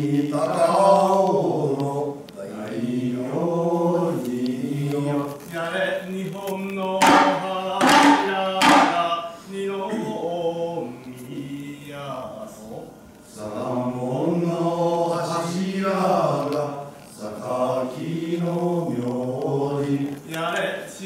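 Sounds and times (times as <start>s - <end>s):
drawn-out chanted singing: 6.1s - 20.3s
shoulder drum strokes: 7.0s - 9.4s.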